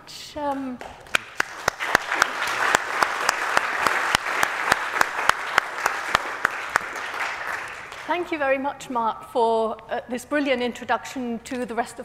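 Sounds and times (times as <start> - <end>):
close sharp hand claps: 0.5 - 8.2
audience applauding: 1.1 - 8.3.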